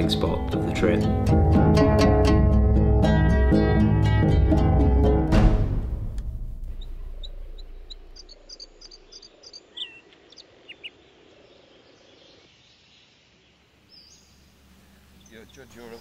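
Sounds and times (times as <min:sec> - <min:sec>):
background music: 0:00.0 - 0:08.4
small wildlife calls: 0:06.7 - 0:16.0.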